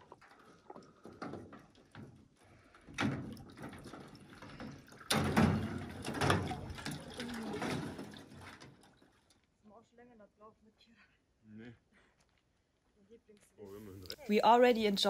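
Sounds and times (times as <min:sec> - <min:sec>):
water sloshing and splashing: 0:00.0 - 0:09.6.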